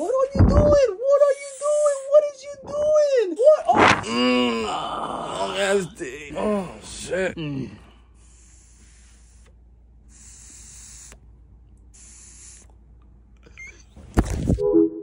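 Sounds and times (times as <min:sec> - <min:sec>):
vape hissing draws: 0:08.2 - 0:11.2, 0:11.9 - 0:12.8.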